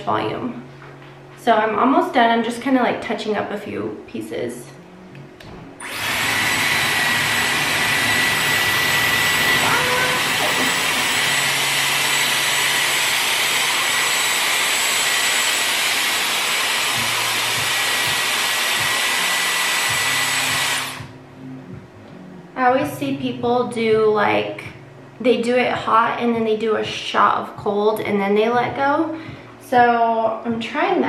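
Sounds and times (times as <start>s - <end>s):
high motor whine: 5.4s - 22.5s
hair styler blowing air: 5.8s - 21.2s.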